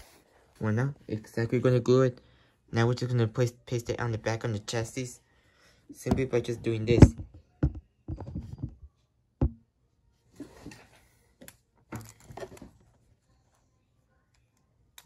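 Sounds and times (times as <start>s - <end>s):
plastic parts clicking and knocking: 6.0s - 9.6s.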